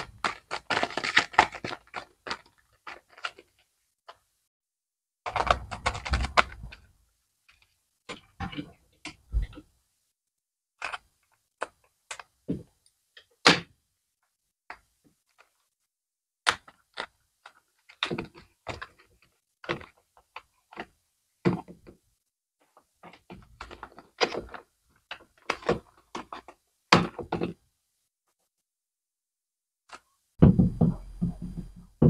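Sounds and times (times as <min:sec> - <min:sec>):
scissors snipping plastic packaging: 0:00.0 - 0:03.4
plastic packaging snapping and crinkling: 0:00.0 - 0:04.2, 0:05.2 - 0:06.8.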